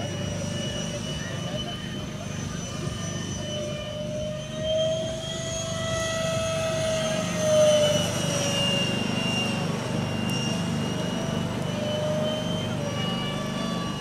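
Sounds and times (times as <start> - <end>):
rc jet ducted fans whining: 0.0 - 14.0.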